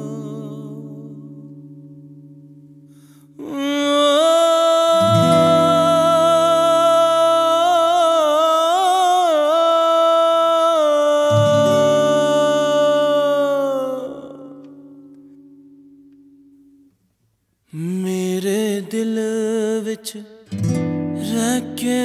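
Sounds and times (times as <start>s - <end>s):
man singing a held note: 0.0s - 1.5s, 3.1s - 15.2s.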